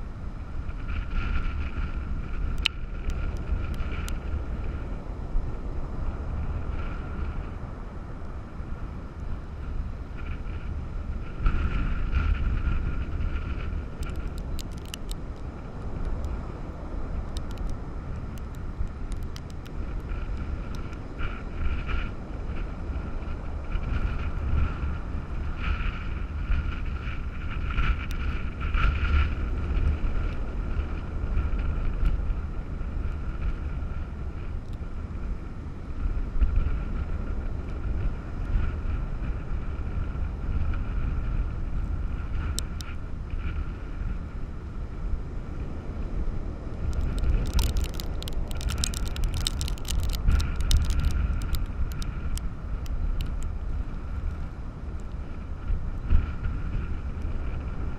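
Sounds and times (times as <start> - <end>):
storm wind buffeting microphone: 0.0 - 57.9
crackling clicks: 0.8 - 4.8, 11.5 - 16.4, 17.2 - 22.0, 26.6 - 30.4, 42.2 - 43.6, 46.7 - 55.3
heavy surf: 36.0 - 57.9.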